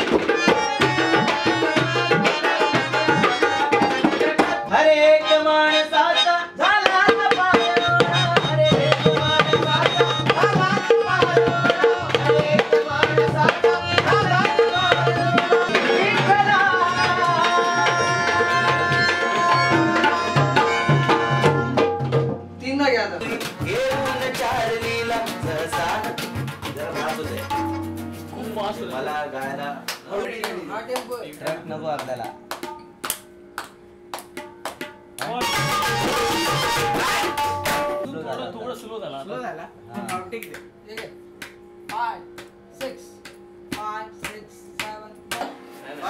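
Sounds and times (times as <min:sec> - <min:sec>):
tabla and dholki drumming: 0:00.0 - 0:05.9, 0:06.6 - 0:22.6, 0:23.2 - 0:29.1, 0:30.4 - 0:38.1
harmonium: 0:00.0 - 0:22.2, 0:23.2 - 0:29.6, 0:35.3 - 0:38.2
guitar: 0:00.0 - 0:22.6, 0:23.2 - 0:46.0
voices singing: 0:00.4 - 0:21.8, 0:23.2 - 0:27.9.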